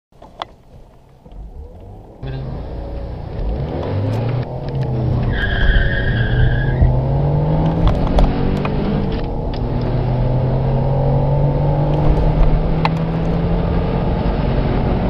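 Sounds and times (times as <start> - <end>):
car engine accelerating: 1.2 - 15.0
high steady squeal: 5.2 - 7.0.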